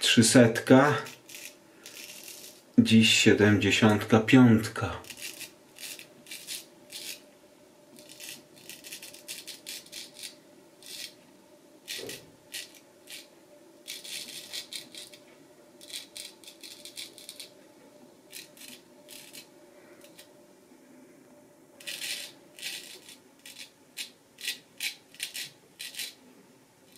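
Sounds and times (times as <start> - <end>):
straight razor scraping stubble: 0.9 - 2.6, 5.0 - 7.2, 8.0 - 11.2, 11.9 - 15.2, 15.8 - 17.5, 18.3 - 20.3, 21.8 - 26.2.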